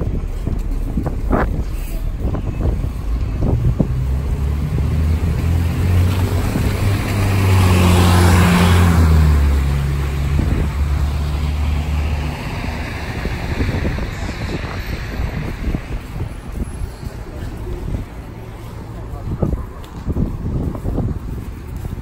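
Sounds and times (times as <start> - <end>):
bus driving past: 0.0 - 22.0.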